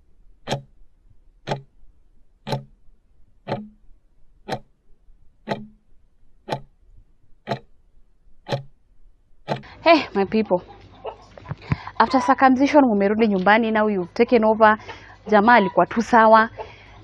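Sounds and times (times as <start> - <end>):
clock ticking: 0.0 - 10.6.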